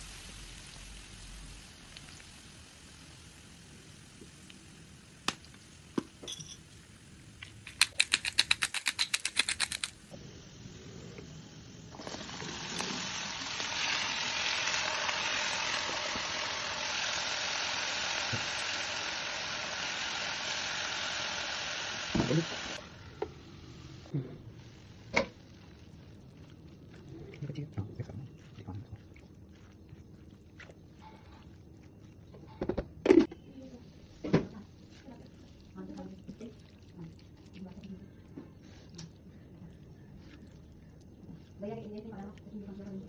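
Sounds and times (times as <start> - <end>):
vegetables sizzling in hot oil: 0.0 - 6.0, 10.2 - 25.8
salt grinder clicking: 7.7 - 10.0.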